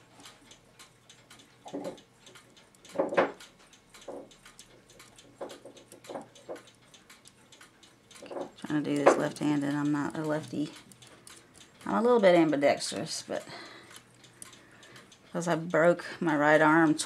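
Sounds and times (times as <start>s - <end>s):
fast clock ticking: 0.0s - 17.0s
light metallic clinks and knocks: 4.0s - 4.4s.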